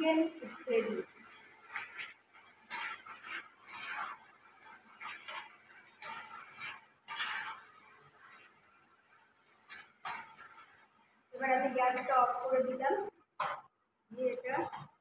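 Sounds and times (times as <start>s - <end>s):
spatula scraping a wok: 0.2s - 13.7s, 14.5s - 15.0s.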